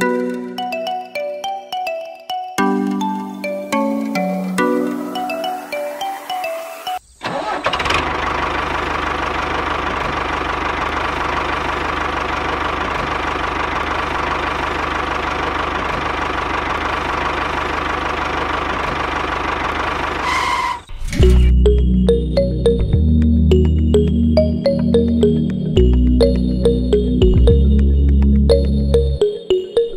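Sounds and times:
tractor engine running: 7.2 - 29.2.

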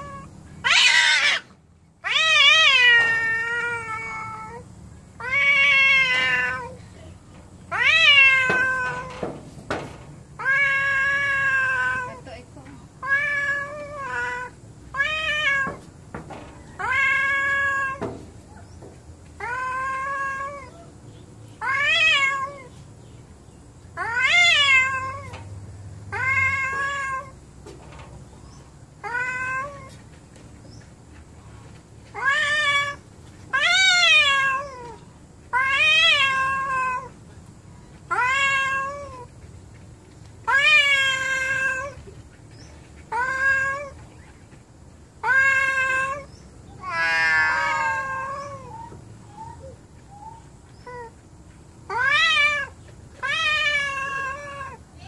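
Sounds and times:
cat yowling: 0.0 - 4.6, 5.2 - 6.8, 7.7 - 9.1, 10.4 - 12.2, 16.7 - 18.0, 19.4 - 20.9, 24.0 - 25.3, 26.1 - 27.4, 32.2 - 37.1, 38.1 - 39.3, 40.5 - 42.0, 45.2 - 51.2, 51.9 - 55.0.

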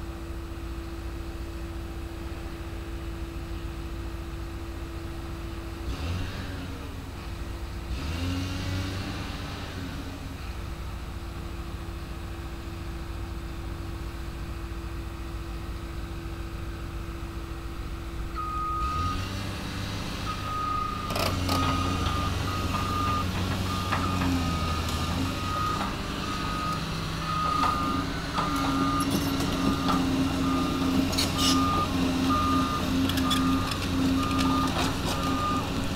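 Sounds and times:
excavator diesel engines running: 0.0 - 35.9
back-up alarm beeping: 20.3 - 35.7.

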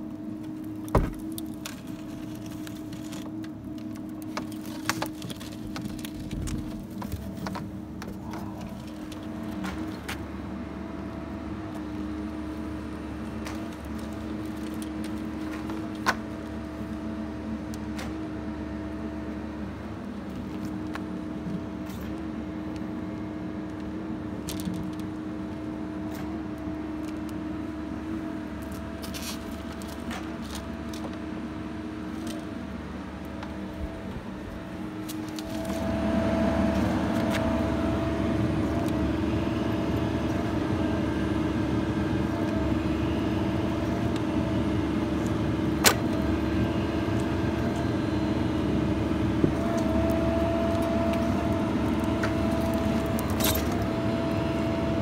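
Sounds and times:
hydraulic pump whine: 0.0 - 55.0.

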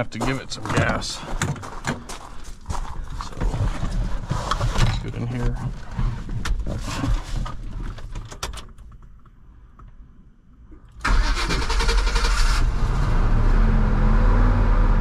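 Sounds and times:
knocks and rattles: 3.2 - 9.3
truck engine starting and running: 10.9 - 15.0.

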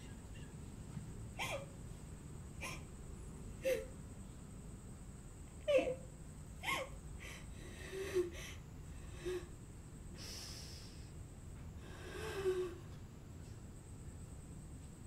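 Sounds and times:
woman crying quietly: 1.4 - 1.8, 2.6 - 2.9, 3.6 - 3.9, 5.6 - 8.5
sniffs: 10.2 - 11.1.

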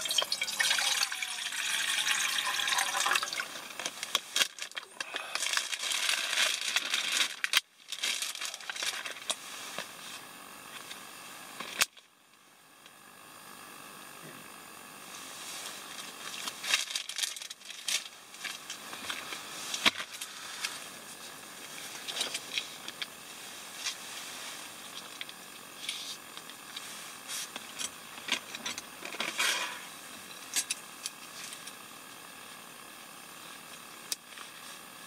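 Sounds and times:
plastic sachets crinkling: 2.7 - 9.8, 16.0 - 20.4.

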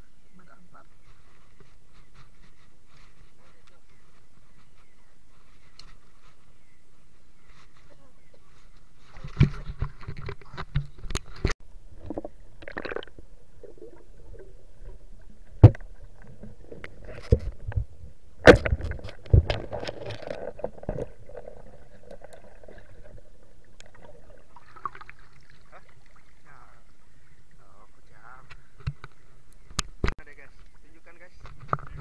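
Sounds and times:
underwater river sloshing: 9.0 - 30.0.

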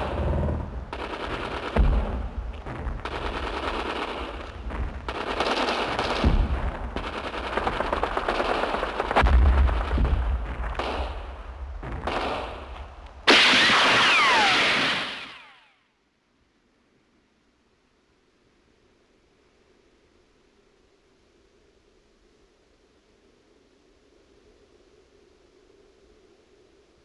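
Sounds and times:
gunshots: 0.0 - 2.4, 3.0 - 11.3, 11.9 - 12.7, 13.3 - 15.8
machine-gun fire: 0.9 - 2.2, 3.0 - 11.2, 12.0 - 12.6, 13.3 - 15.7
falling whistles: 13.3 - 15.8.

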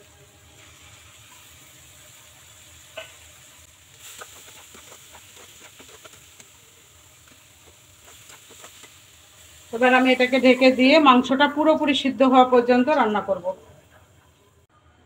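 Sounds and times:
meat sizzling in pan: 0.0 - 11.8
spatula scraping pan: 4.0 - 6.6, 7.2 - 9.1.

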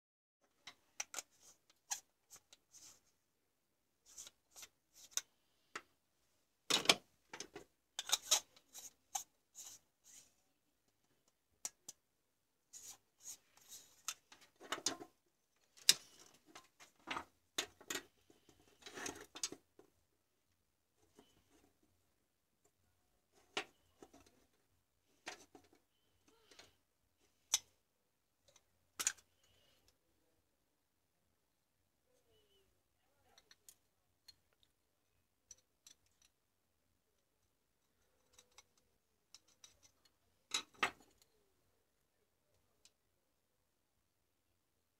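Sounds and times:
screwdriver scraping plastic: 8.0 - 10.2.

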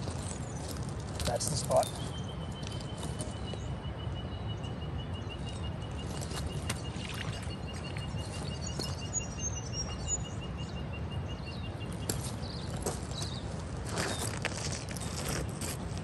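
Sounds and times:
footsteps on loose stones: 0.0 - 3.6, 6.0 - 6.9, 8.2 - 9.1, 12.0 - 16.0
bird chirps: 0.5 - 14.4.

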